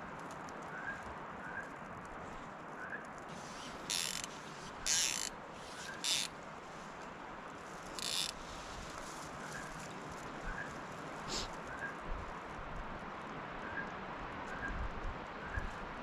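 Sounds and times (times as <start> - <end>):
fishing reel drag ratcheting: 3.3 - 6.3, 7.9 - 8.4.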